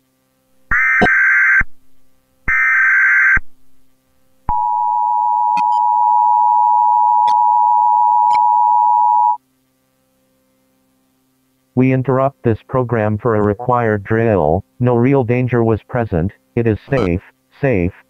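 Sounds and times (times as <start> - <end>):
short buzzy data bursts: 16.8 - 17.3
harsh two-tone alert signal: 16.9 - 17.2.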